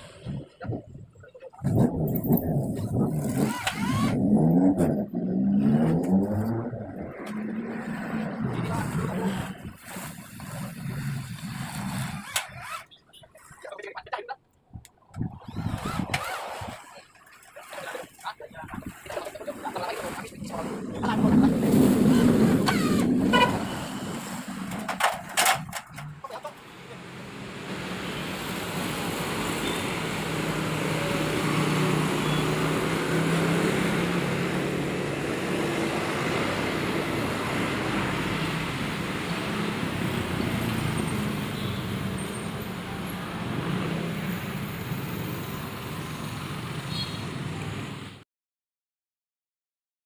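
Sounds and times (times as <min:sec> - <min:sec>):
distant road traffic: 0:00.0 - 0:18.4, 0:19.7 - 0:48.2
electric drill: 0:03.1 - 0:04.3, 0:11.0 - 0:12.9, 0:15.5 - 0:16.9.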